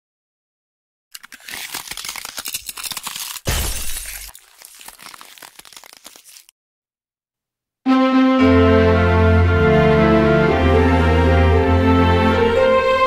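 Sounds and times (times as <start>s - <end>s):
shattering and crackling: 1.2s - 6.5s.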